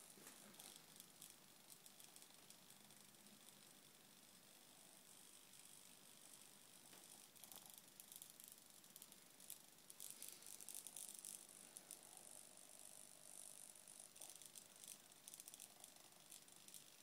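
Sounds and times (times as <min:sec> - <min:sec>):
servo buzzing and clicking: 0:05.3 - 0:17.0.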